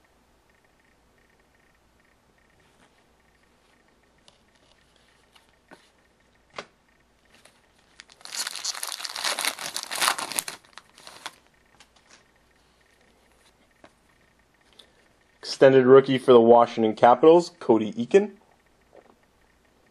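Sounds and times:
foil wrapper tearing and crinkling: 8.0 - 11.4.

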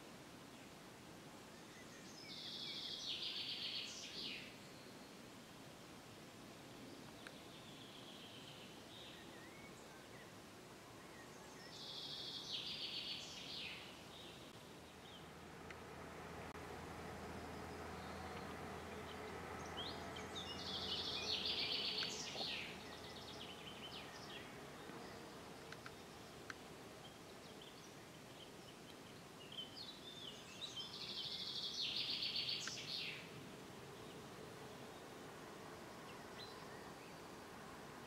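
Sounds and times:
faint background noise: 0.0 - 38.0
songbird trilling: 19.6 - 26.3.

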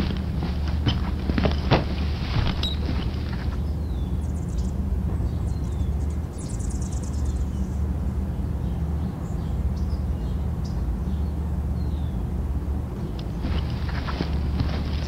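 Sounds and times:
rattling bird trill: 0.0 - 8.8
steady low rumble: 0.0 - 15.0
bird chirps: 2.6 - 12.2.

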